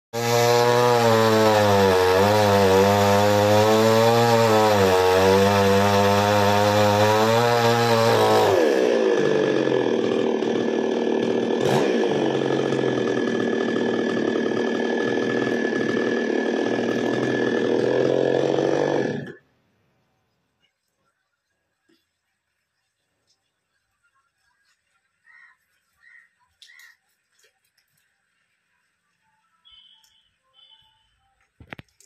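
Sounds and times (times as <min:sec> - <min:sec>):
chainsaw cutting branches: 0:00.2 - 0:19.4.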